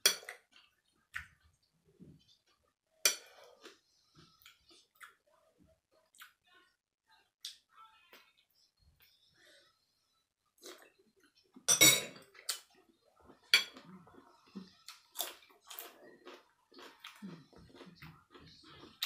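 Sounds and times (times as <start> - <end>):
eating and chewing: 0.0 - 6.4, 10.4 - 19.0
cutlery clattering against bowl: 11.7 - 12.3, 13.5 - 13.8.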